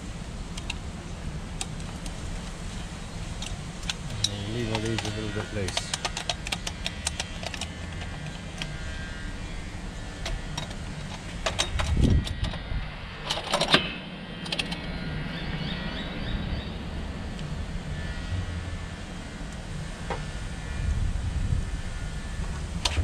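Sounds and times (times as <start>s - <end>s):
low hum: 0.0s - 23.0s
metal parts clicking and clinking: 3.3s - 8.8s, 10.2s - 12.6s, 13.2s - 14.8s.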